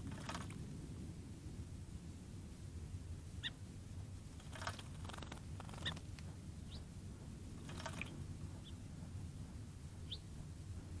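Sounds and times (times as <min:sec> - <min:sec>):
low background rumble: 0:00.0 - 0:11.0
bird splashing in water: 0:00.1 - 0:00.6, 0:04.4 - 0:06.1, 0:07.6 - 0:08.1.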